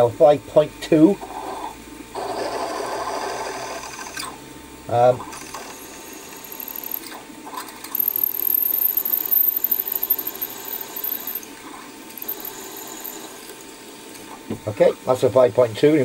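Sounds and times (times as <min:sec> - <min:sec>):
drill cutting metal: 0:05.3 - 0:07.1, 0:12.1 - 0:13.5
drill spindle running: 0:05.3 - 0:07.1, 0:07.9 - 0:11.5, 0:12.1 - 0:13.6.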